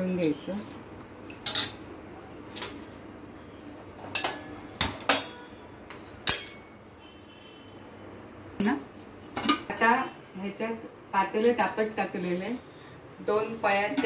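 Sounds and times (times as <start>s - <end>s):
metal pots and utensils clinking: 1.3s - 1.8s, 4.0s - 6.7s, 9.2s - 9.8s.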